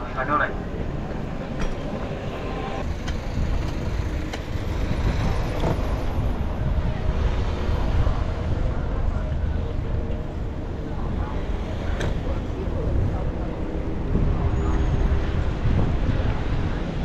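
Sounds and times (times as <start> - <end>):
city traffic rumble: 0.0 - 17.0.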